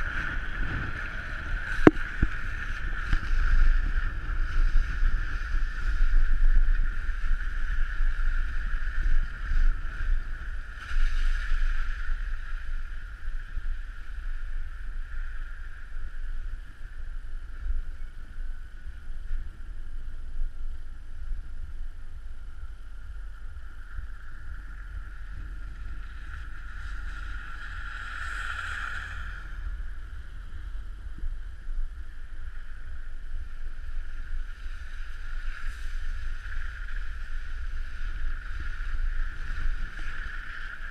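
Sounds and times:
car road and wind rumble: 0:00.0 - 0:40.9.

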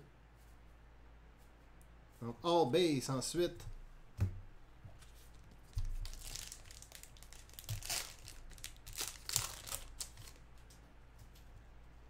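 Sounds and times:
wrapper tearing and crinkling: 0:05.3 - 0:10.4.

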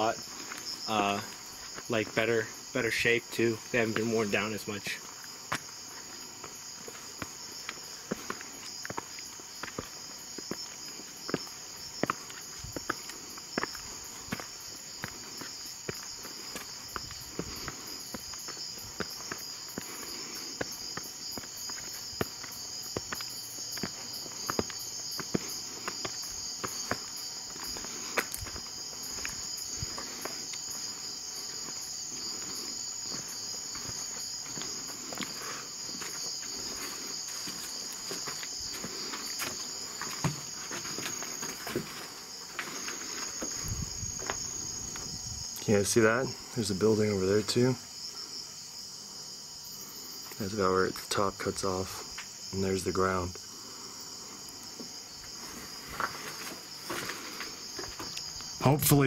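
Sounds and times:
footsteps on stone and grit: 0:00.0 - 0:46.4, 0:50.9 - 0:58.6
night insects chorus: 0:00.0 - 0:59.0.

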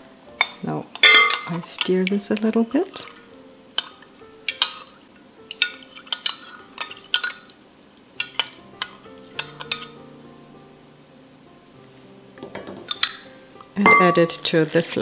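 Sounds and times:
metal spoon clinking against glass jug: 0:00.4 - 0:02.0.

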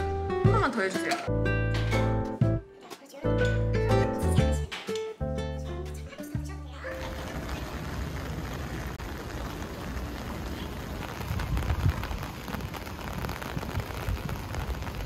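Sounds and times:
rain on umbrella: 0:06.7 - 0:15.0.

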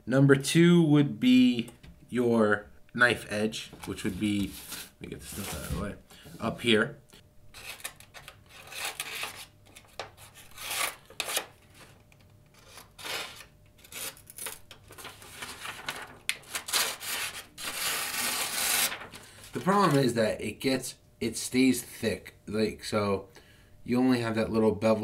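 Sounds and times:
paper being cut with rasping strokes: 0:07.6 - 0:09.5, 0:10.2 - 0:11.5, 0:12.5 - 0:19.1.

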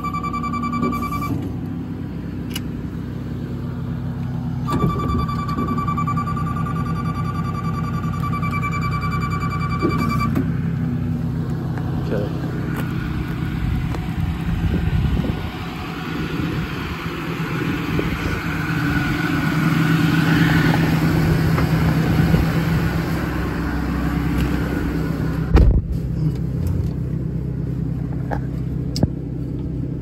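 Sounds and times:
diesel engine running: 0:00.0 - 0:30.0
heavy thump: 0:25.5 - 0:26.0.

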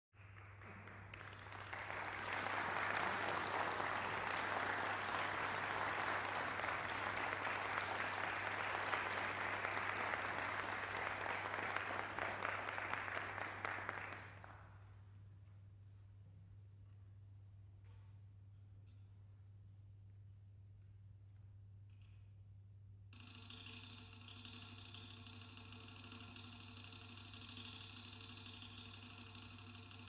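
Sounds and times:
audience applauding: 0:00.2 - 0:14.7.

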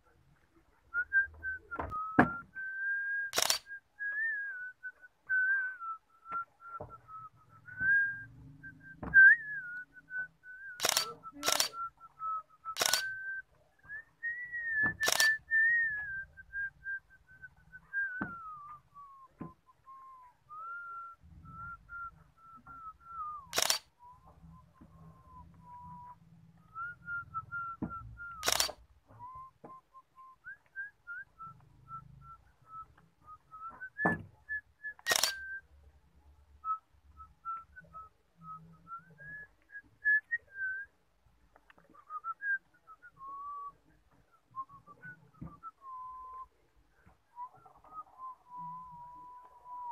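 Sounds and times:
person whistling a slow tune: 0:00.9 - 0:35.8, 0:36.6 - 0:41.0, 0:41.8 - 0:49.9
sharp clicks: 0:03.3 - 0:03.8, 0:10.7 - 0:11.8, 0:12.7 - 0:13.3, 0:15.0 - 0:15.4, 0:23.4 - 0:23.9, 0:28.3 - 0:28.8, 0:35.0 - 0:35.6.

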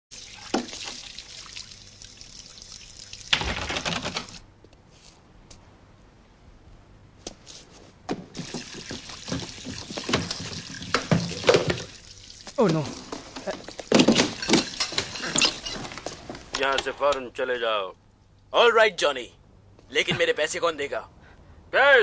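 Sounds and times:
water splashing in a sink: 0:00.1 - 0:04.4, 0:08.4 - 0:15.2
knocks and rustles: 0:08.0 - 0:11.9, 0:13.0 - 0:16.9.

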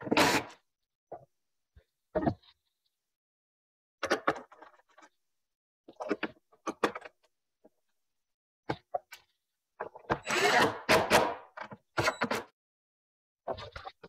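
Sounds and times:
cordless driver driving screw: 0:10.2 - 0:11.3.

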